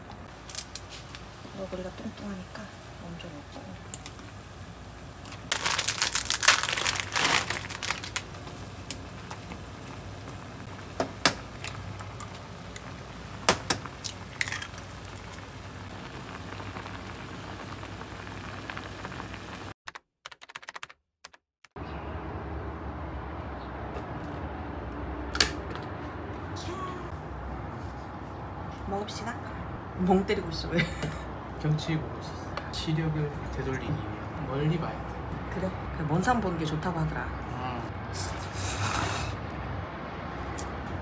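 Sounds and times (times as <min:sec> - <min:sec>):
noodle packet crinkling and clicking: 0:05.2 - 0:09.5.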